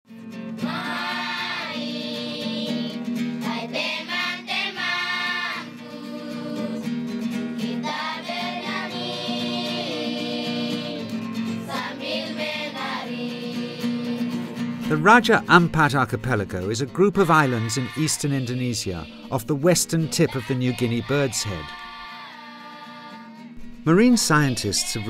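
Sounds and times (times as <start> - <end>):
voices singing long notes: 0.6 - 7.0, 7.6 - 25.0.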